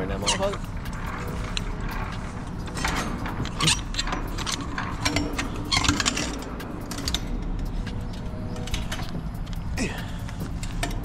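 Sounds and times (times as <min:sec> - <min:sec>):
low rumble: 0:00.0 - 0:11.0
metal ramp clanking and rattling: 0:00.0 - 0:11.0.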